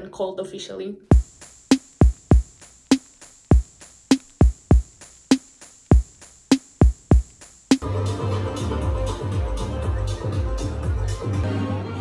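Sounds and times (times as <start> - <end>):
deep kick drums: 1.1 - 7.8
faint high hiss: 1.1 - 7.8
snare-like hit: 1.1 - 7.8.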